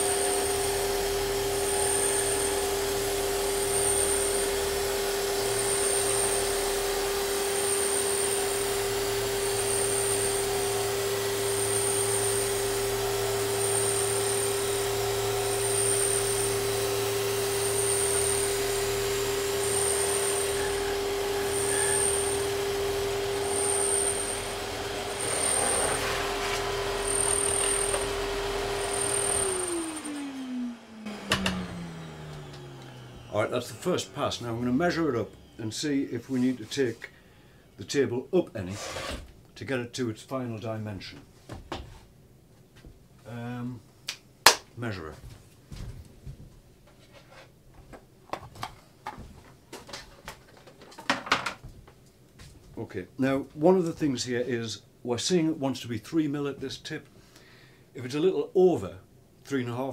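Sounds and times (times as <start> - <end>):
motor winding down: 0.0 - 36.4
sanding machine whirring hum: 0.0 - 37.2.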